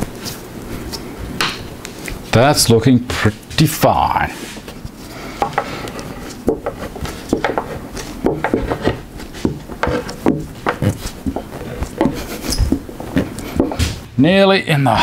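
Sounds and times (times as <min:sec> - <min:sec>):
knocks and taps on plywood bench: 0:06.5 - 0:13.9.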